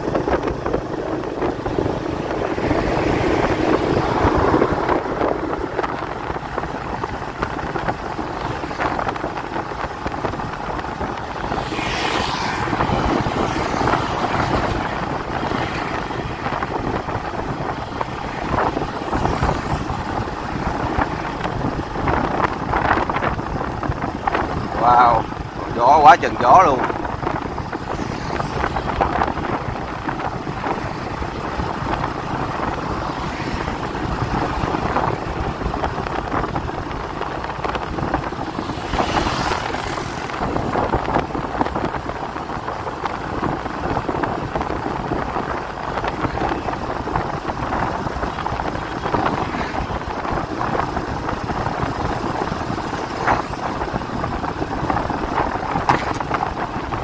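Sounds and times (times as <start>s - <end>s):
vehicle road and engine noise: 0.0s - 57.0s
wind rushing over microphone: 0.0s - 57.0s.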